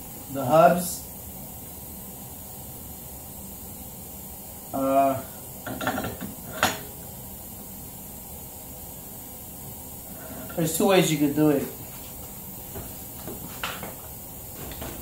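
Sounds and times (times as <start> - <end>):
steady low hiss: 0.0 - 15.0.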